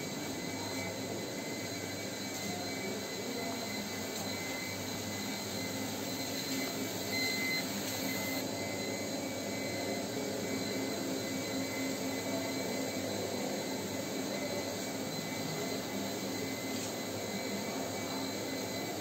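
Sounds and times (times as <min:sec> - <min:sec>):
machinery hum: 0:00.0 - 0:19.0.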